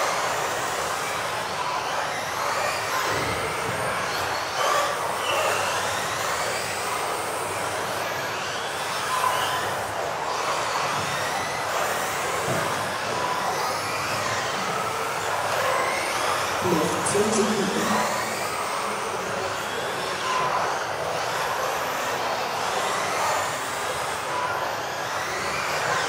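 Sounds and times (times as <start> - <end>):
rc buggy motors whining: 0.0 - 26.0
running noise: 11.7 - 24.7.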